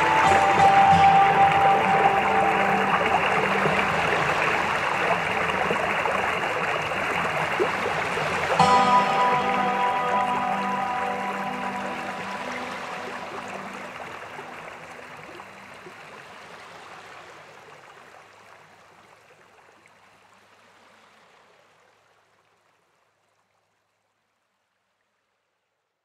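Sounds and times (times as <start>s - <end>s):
held music notes: 0.0s - 7.8s, 8.4s - 15.4s
rushing stream-like noise: 0.0s - 22.6s.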